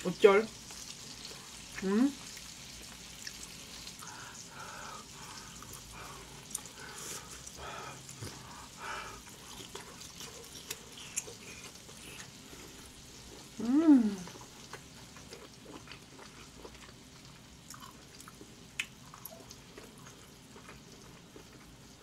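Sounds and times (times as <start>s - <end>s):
close chewing sounds: 0.6s - 4.4s, 5.0s - 13.6s, 14.2s - 22.0s
person humming mm: 13.6s - 14.4s.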